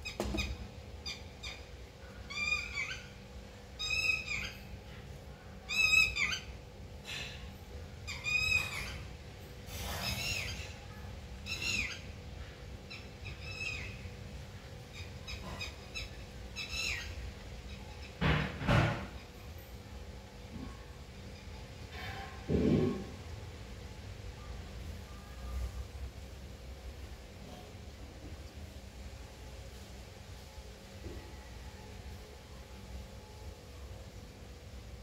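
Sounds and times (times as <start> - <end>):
parrot calling: 0.0 - 3.2, 3.8 - 4.7, 5.7 - 7.3, 8.0 - 9.1, 9.7 - 12.2, 12.9 - 14.1, 14.8 - 18.2.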